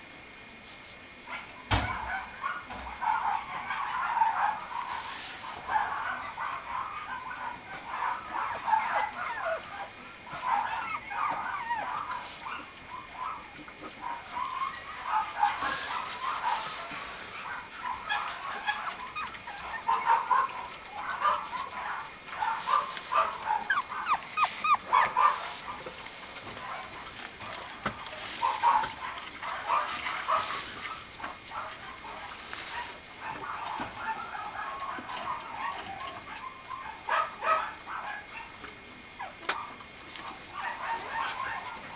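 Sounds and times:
puppy whimpering and yipping: 7.7s - 9.7s, 10.4s - 13.4s, 18.1s - 20.3s, 23.5s - 25.5s.

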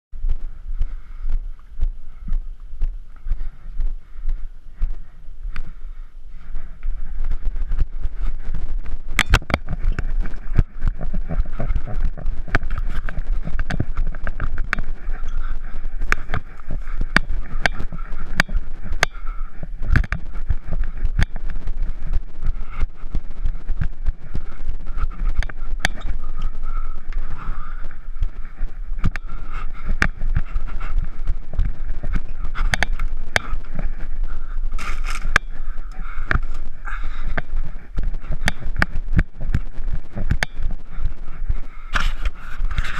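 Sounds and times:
low rumble: 0.1s - 42.9s.

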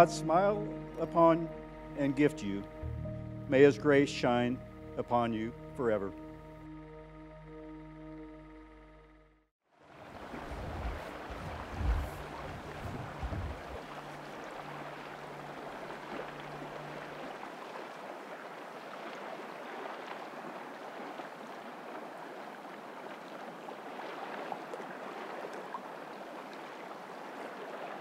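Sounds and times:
rushing water: 0.0s - 5.7s, 9.8s - 28.0s
low hum: 0.0s - 9.5s.

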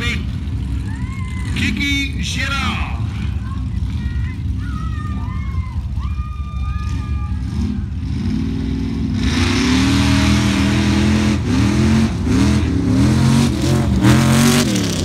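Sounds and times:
vehicle engine revving hard: 7.5s - 15.0s.

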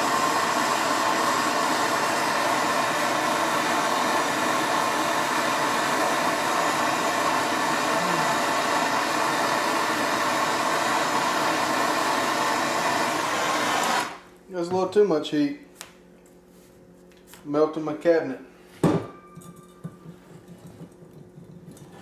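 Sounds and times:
gas torch hissing: 0.0s - 14.3s.

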